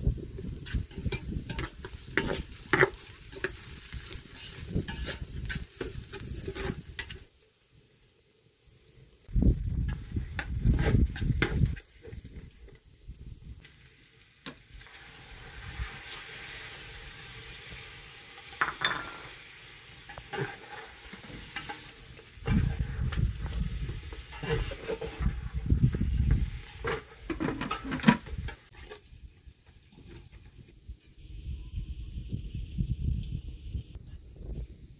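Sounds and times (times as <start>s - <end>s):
onions and meat sizzling: 0.0s - 34.9s
metal spoon scraping a pot: 0.5s - 7.3s, 20.1s - 23.2s, 24.1s - 25.5s.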